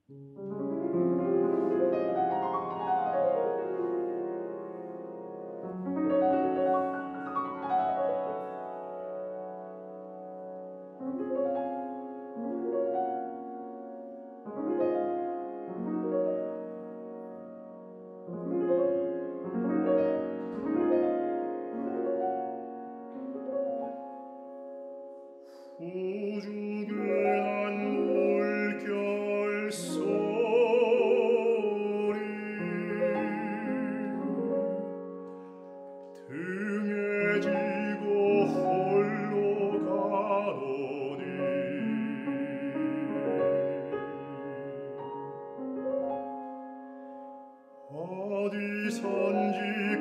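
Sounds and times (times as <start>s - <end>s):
grand piano: 0.0s - 50.0s
man singing with vibrato: 25.8s - 34.8s, 36.2s - 45.2s, 47.9s - 50.0s.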